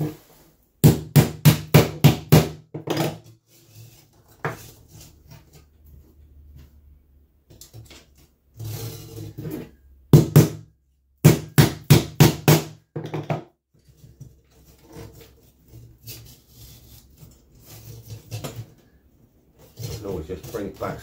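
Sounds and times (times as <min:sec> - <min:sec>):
short scrape: 0:08.6 - 0:09.9.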